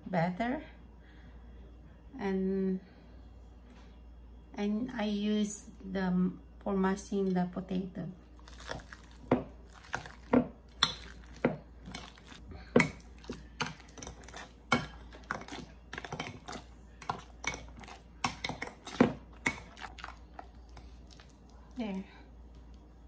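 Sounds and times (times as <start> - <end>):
masher squashing bananas: 8.4 - 21.4.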